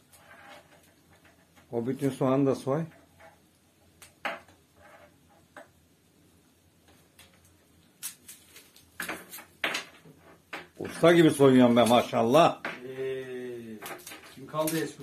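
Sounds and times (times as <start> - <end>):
soft clicks and rustles: 6.8 - 10.8.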